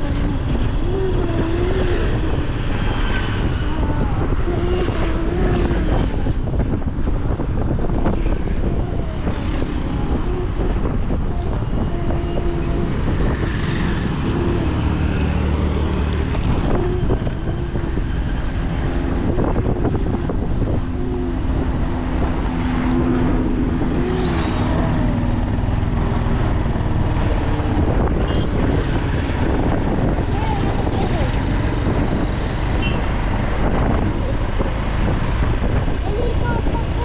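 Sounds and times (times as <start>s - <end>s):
road and wind noise: 0.0s - 37.0s.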